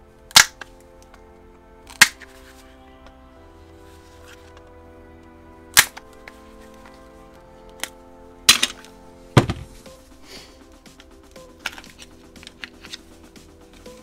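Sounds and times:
background music: 0.0 - 14.0.

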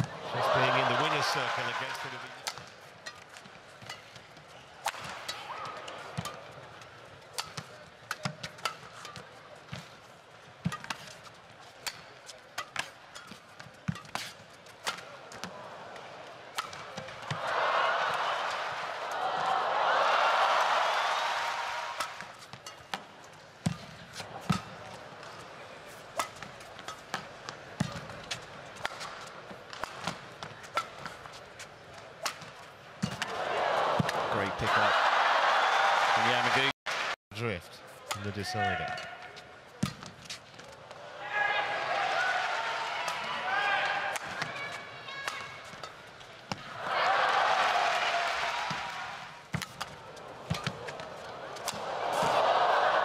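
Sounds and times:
rackets striking shuttlecock: 2.4 - 10.0, 10.6 - 15.6, 16.5 - 17.4, 21.9 - 25.4, 26.0 - 33.4, 43.0 - 46.7, 49.5 - 52.4.

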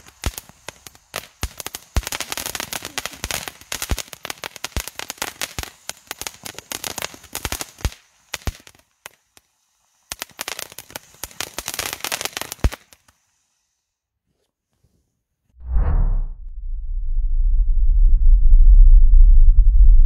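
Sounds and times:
firework fountain crackling: 0.0 - 13.9.

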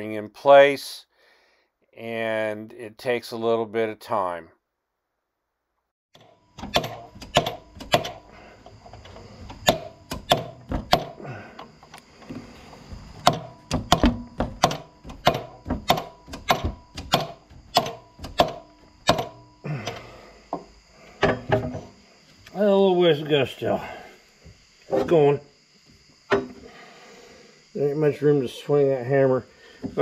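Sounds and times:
hammer knocking on metal: 13.2 - 19.4.

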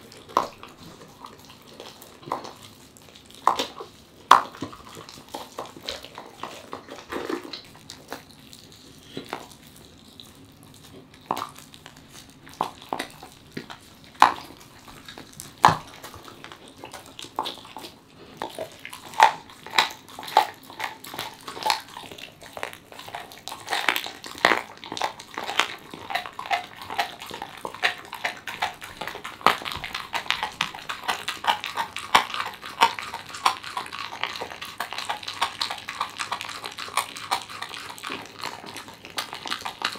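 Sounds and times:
dog chewing wetly: 0.0 - 39.9
bone crunching: 10.8 - 39.9.

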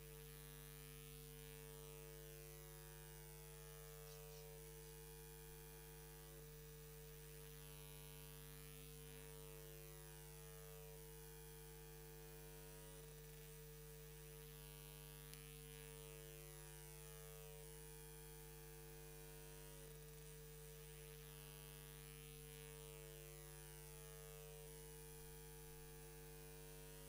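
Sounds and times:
electrical mains hum: 0.0 - 27.0.

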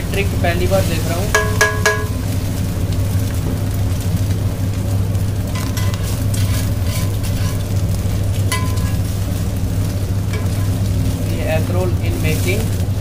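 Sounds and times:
flatbread sizzling on griddle: 0.0 - 13.0
steady low hum: 0.0 - 13.0
metal spatula scraping griddle: 5.6 - 7.8, 8.5 - 9.2, 10.3 - 10.9.

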